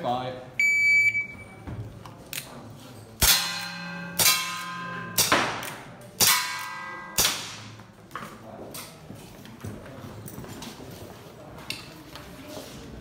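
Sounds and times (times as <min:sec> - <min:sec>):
air pistol shots: 0:03.2 - 0:07.8.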